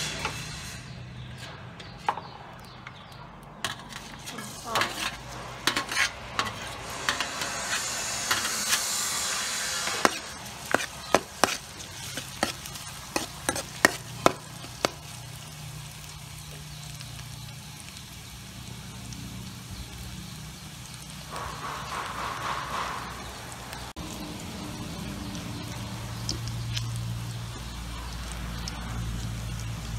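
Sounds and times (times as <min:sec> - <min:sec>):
metal ladle scraping a wok: 0:00.0 - 0:02.0, 0:03.6 - 0:14.8
garlic sizzling in hot oil: 0:03.6 - 0:29.9.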